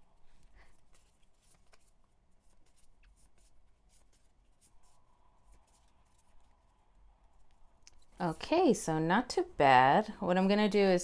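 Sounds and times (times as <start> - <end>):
paper cards rustling and clicking: 0.3 - 8.3.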